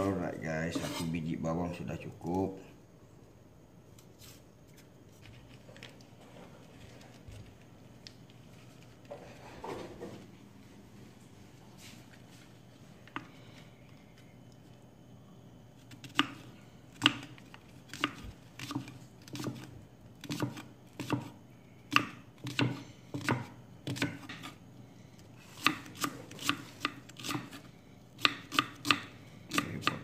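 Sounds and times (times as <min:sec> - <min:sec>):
knife chopping on wooden board: 0:17.0 - 0:17.3, 0:17.9 - 0:24.6, 0:25.6 - 0:27.6, 0:28.2 - 0:30.0.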